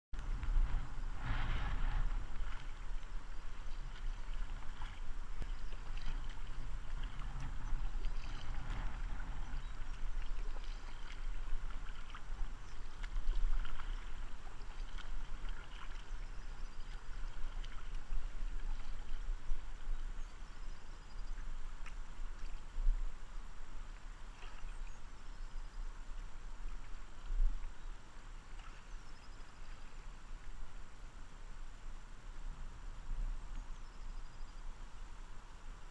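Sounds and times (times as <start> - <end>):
low rumble: 0.2 - 21.4
paddle splashes: 0.2 - 30.8
water gurgling along hull: 0.2 - 31.3.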